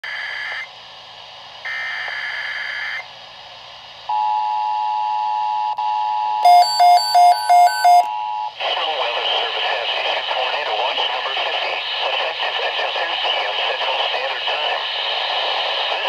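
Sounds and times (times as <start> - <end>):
radio alarm beeps: 4.1 - 8.6.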